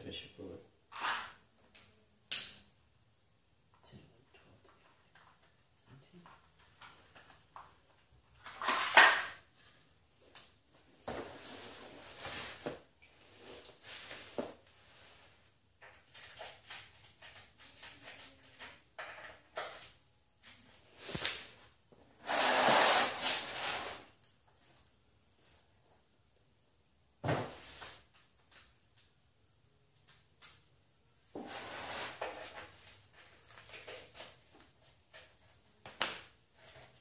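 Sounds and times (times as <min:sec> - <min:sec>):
scraping and rustling hand work: 0:00.9 - 0:01.4, 0:10.8 - 0:24.7, 0:31.3 - 0:35.8.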